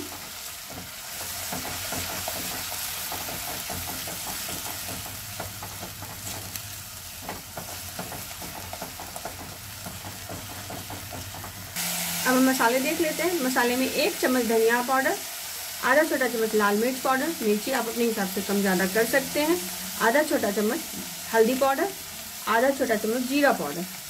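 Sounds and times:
paste sizzling in hot oil: 0:00.0 - 0:24.0.

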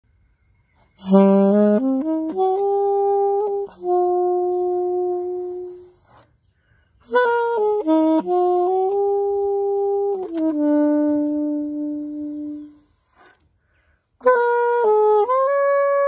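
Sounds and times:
alto saxophone melody: 0:00.8 - 0:16.0
player breathing: 0:06.3 - 0:07.0, 0:12.9 - 0:14.2.

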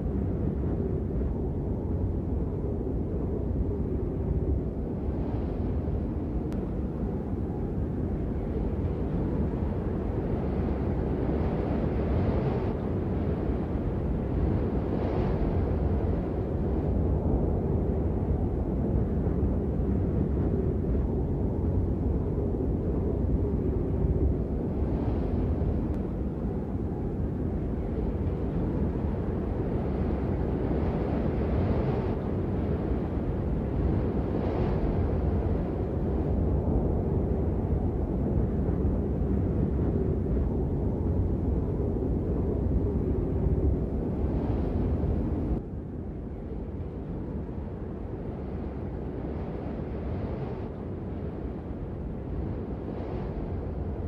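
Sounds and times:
low wind rumble: 0:00.0 - 0:54.0.

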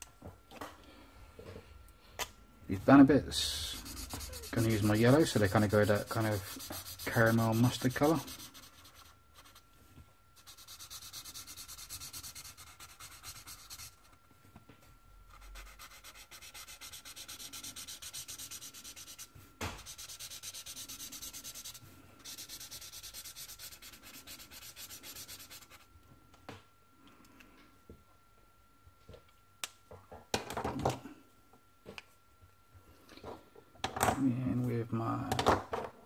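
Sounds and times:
marker scratching on paper: 0:03.4 - 0:09.6, 0:10.4 - 0:14.0, 0:15.3 - 0:25.8.

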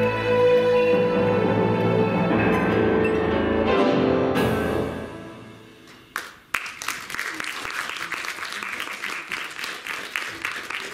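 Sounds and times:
audience applauding: 0:06.1 - 0:10.9.

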